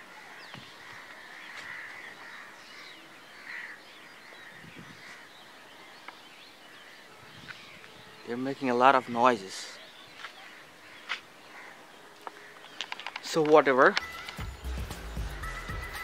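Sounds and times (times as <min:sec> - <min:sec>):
crows cawing: 0:00.0 - 0:07.8, 0:10.2 - 0:14.6.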